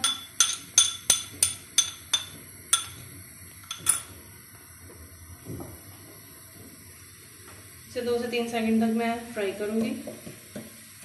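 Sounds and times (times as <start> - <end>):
metal spoon clinking on glass bowl: 0.0 - 3.0, 3.7 - 4.1.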